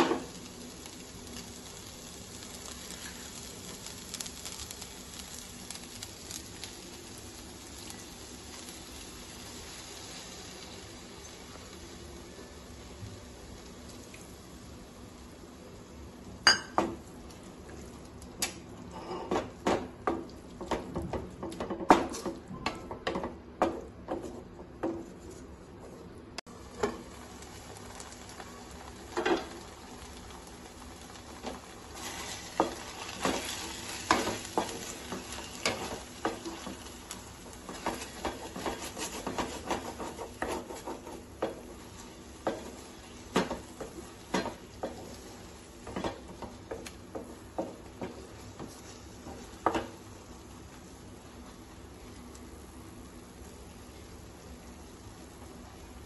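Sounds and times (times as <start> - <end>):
greens sizzling: 0.0 - 22.4, 26.4 - 56.0
wooden spatula scraping a pan: 31.5 - 37.0, 37.6 - 49.9.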